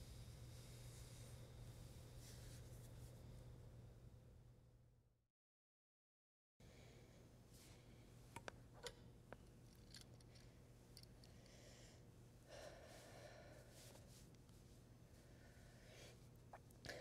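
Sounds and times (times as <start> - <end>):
low steady hum: 0.0 - 5.1, 6.6 - 17.0
soft breath: 6.6 - 8.2, 10.3 - 14.3, 15.1 - 17.0.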